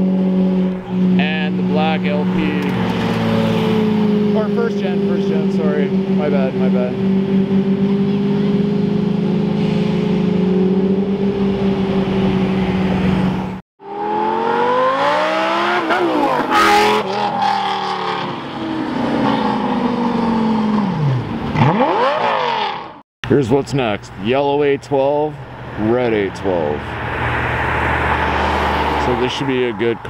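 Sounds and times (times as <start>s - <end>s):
sports car engine running steadily: 0.0s - 13.6s
sports car accelerating hard: 0.0s - 23.0s, 26.9s - 29.7s
engine exhaust crack: 1.8s - 3.8s.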